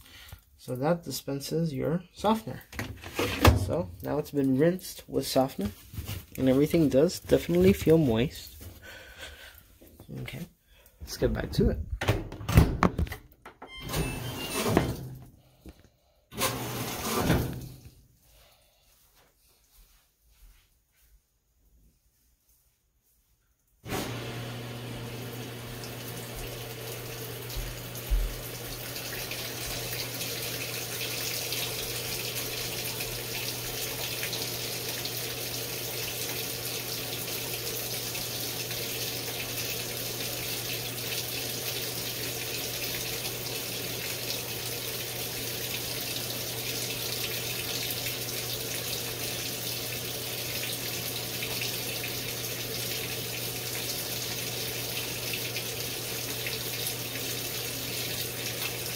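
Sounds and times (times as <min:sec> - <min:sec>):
water rushing into washer tub: 0:02.2 - 0:09.6, 0:13.7 - 0:15.6, 0:16.3 - 0:18.0, 0:23.8 - 0:58.9.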